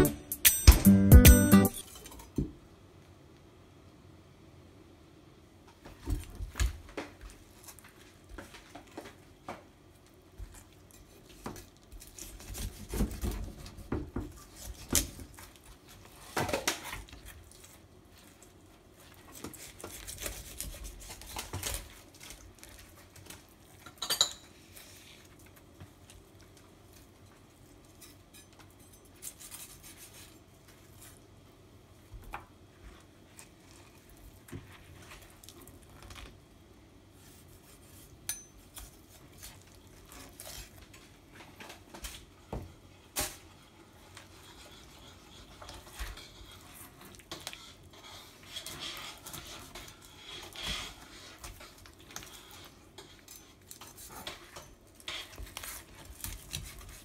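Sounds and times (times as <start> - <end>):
knife cutting and scraping fish: 10.4 - 23.5, 27.7 - 31.2, 37.1 - 57.0.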